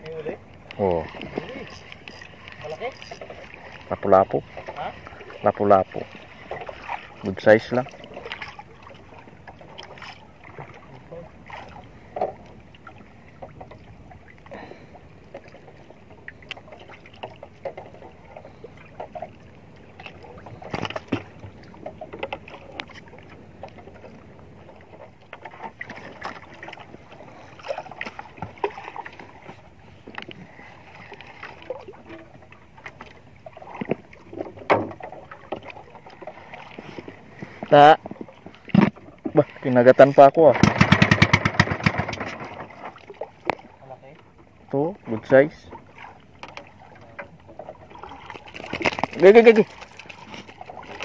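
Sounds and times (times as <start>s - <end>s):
rushing water and wind: 0.0s - 51.0s
waves lapping against boat hull: 0.0s - 51.0s
knocks from boat: 33.8s - 39.4s, 40.4s - 43.6s.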